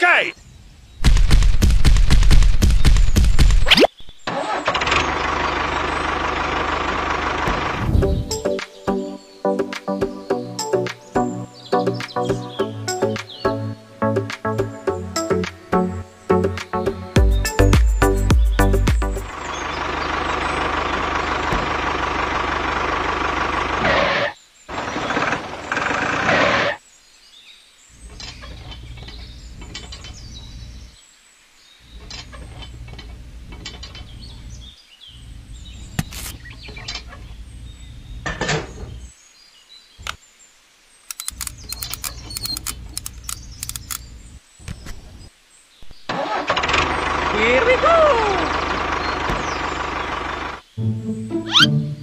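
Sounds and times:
small metal parts clicking: 41.1 - 44.0.

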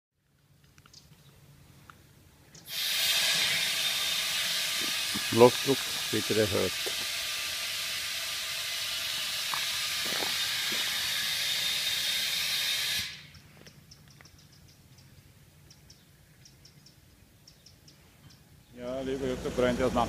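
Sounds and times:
compressed air hissing into tyre: 2.6 - 13.4.

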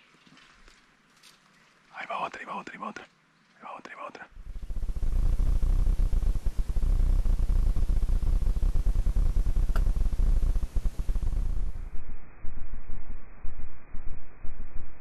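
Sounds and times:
crackling low rumble of damaged audio: 0.0 - 15.0
faint click: 9.7 - 10.0.

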